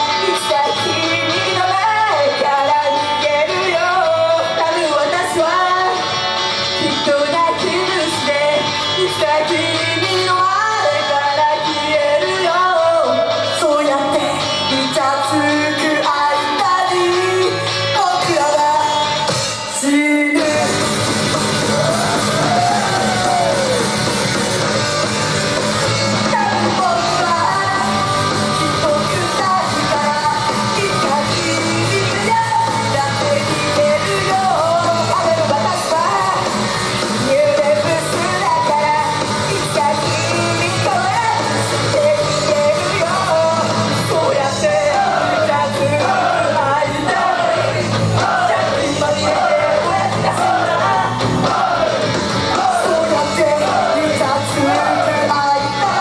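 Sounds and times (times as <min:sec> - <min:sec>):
women singing into microphones: 0:00.0 - 0:06.0, 0:06.8 - 0:19.1, 0:26.3 - 0:36.5, 0:37.2 - 0:56.0
loud rock music: 0:00.0 - 0:56.0
shouted lines: 0:21.6 - 0:24.0.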